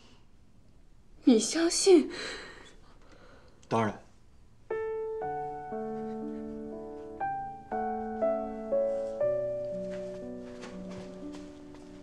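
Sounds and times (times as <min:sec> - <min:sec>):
slow piano melody: 0:04.6 - 0:12.0.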